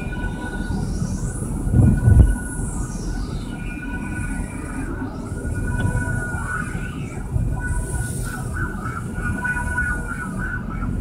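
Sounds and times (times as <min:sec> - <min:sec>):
faint high whine: 0:00.0 - 0:11.0
car cabin road rumble: 0:01.3 - 0:02.8, 0:04.7 - 0:11.0.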